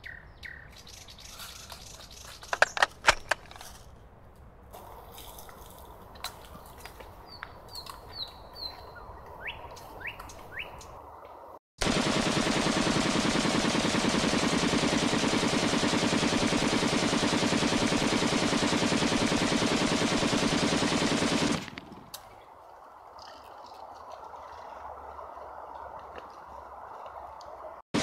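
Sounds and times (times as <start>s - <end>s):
bird chirps: 0.0s - 2.8s, 6.5s - 11.0s
automatic rifle fire: 11.8s - 21.8s.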